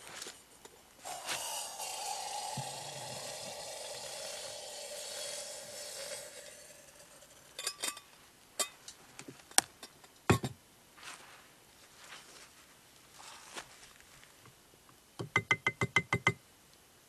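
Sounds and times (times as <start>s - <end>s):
steady hiss: 0.0s - 15.2s
metal cookware clinking: 6.6s - 8.8s.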